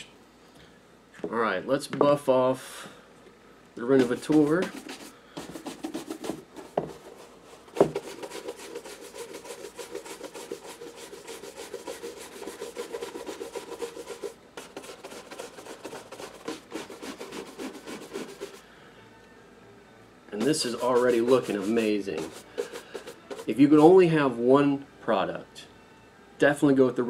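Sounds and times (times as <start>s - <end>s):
shoe brush scrubbing leather: 4.0s - 18.6s, 20.4s - 24.0s.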